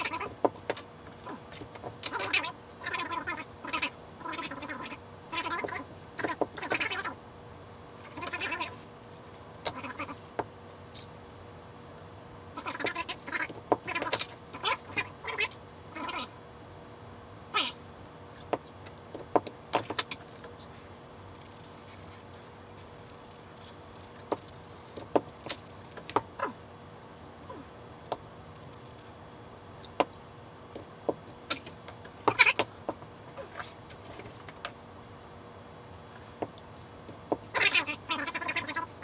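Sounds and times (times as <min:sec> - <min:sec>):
high wavering chirps: 0:20.6 - 0:26.1, 0:28.5 - 0:29.2.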